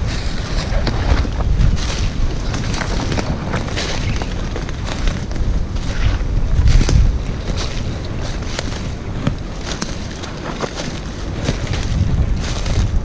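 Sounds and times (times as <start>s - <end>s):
brush crackling and snapping: 0.0s - 13.0s
footsteps through brush: 0.0s - 13.0s
wind buffeting microphone: 0.0s - 13.0s.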